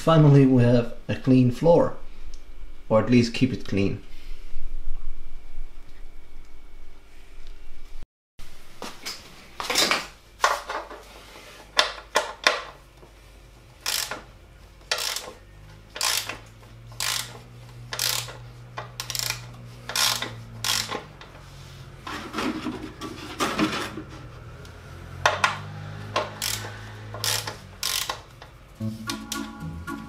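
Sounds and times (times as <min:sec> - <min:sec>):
socket ratchet clicking: 0:13.8 - 0:14.3, 0:14.9 - 0:21.2, 0:25.4 - 0:28.6.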